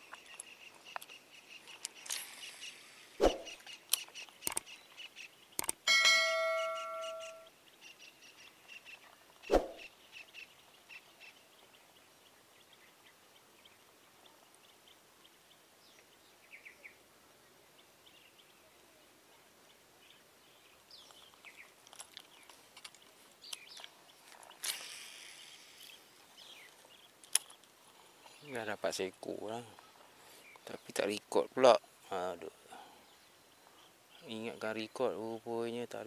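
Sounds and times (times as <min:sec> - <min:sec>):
faint birdsong chirping: 0:00.0 - 0:36.0
fishing rod cast swish: 0:03.2 - 0:03.6, 0:09.5 - 0:09.8.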